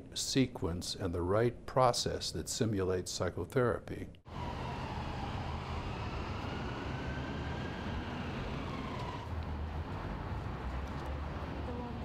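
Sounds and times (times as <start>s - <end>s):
faint rising and falling tone: 4.3s - 10.4s
rumble of passing vehicles: 4.3s - 12.0s.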